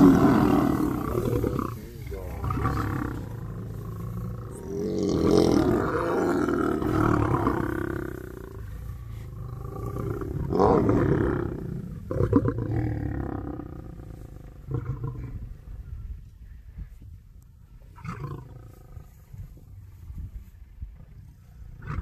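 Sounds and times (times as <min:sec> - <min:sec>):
lions snarling: 0:00.0 - 0:15.6.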